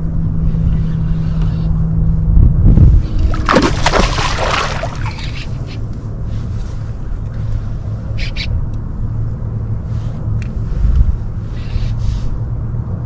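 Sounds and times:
steady low hum: 0:00.0 - 0:13.0
water splashing: 0:03.0 - 0:05.6.

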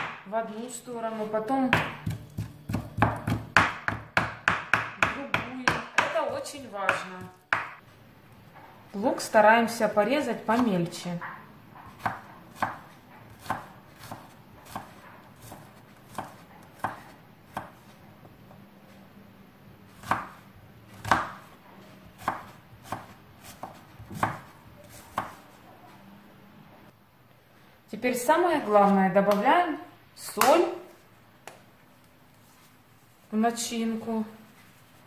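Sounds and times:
knife chopping on wooden board: 0:01.7 - 0:07.8, 0:11.8 - 0:17.8, 0:20.0 - 0:20.4, 0:21.0 - 0:21.5, 0:22.2 - 0:25.4.

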